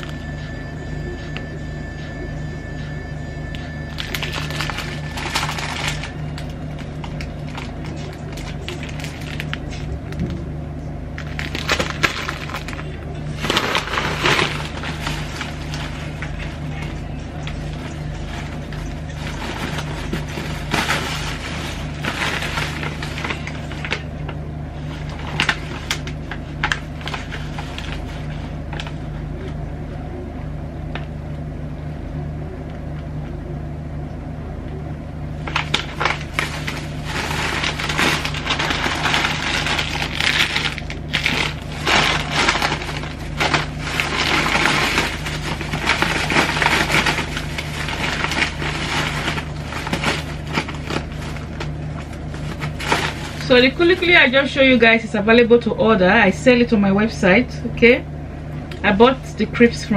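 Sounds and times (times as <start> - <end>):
steady low hum: 0.0 - 59.9
plastic bags rustling: 3.8 - 10.5, 11.2 - 29.1, 35.4 - 56.0.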